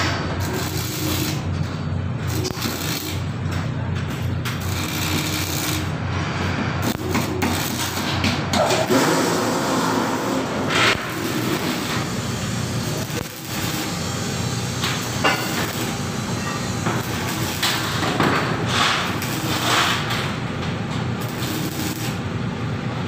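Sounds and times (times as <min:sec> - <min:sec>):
welding arc crackling hiss: 0:00.0 - 0:01.5, 0:02.3 - 0:03.4, 0:04.6 - 0:06.0, 0:06.8 - 0:22.5.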